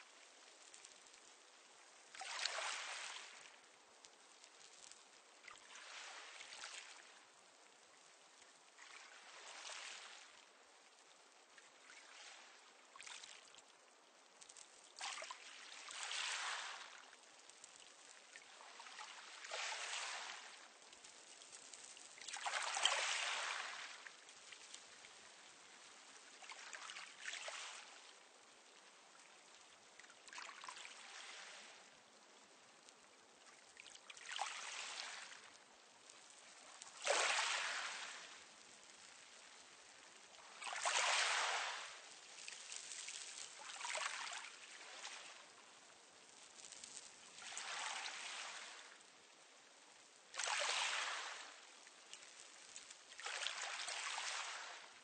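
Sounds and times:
waves washing over pebbles: 36.8s - 39.0s, 40.5s - 45.1s, 50.4s - 51.6s.

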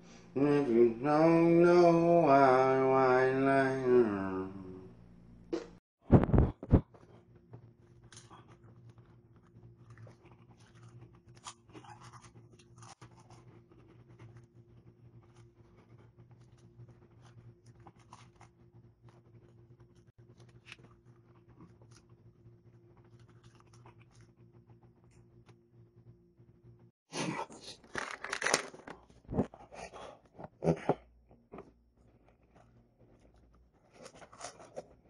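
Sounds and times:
chewing: 8.0s - 25.2s.

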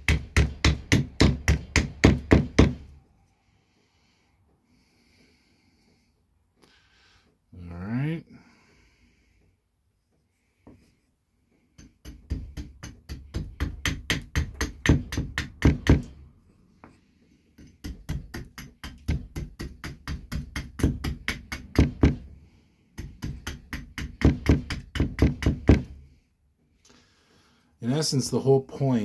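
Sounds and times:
axe chopping wood: 0.0s - 2.8s, 11.8s - 16.1s, 17.6s - 22.3s.

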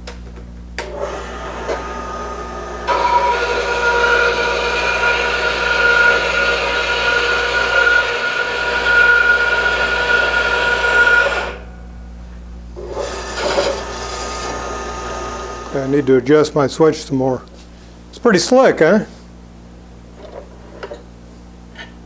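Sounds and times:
bandsaw motor and blade whining: 0.8s - 11.7s, 12.8s - 16.3s.

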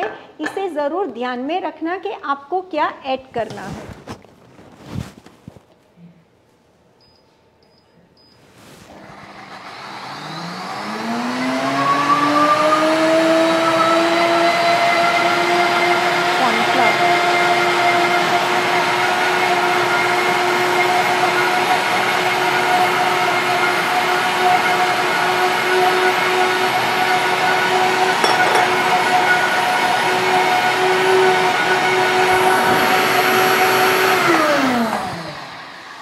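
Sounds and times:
blender motor whining: 8.9s - 28.2s, 28.8s - 36.0s.

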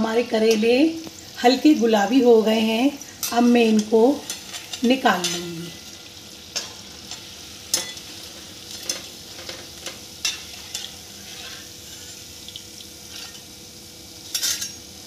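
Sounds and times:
hot oil sizzling: 0.0s - 15.0s
metal utensils clinking against wok: 3.2s - 5.5s, 6.6s - 8.1s, 14.3s - 14.8s.

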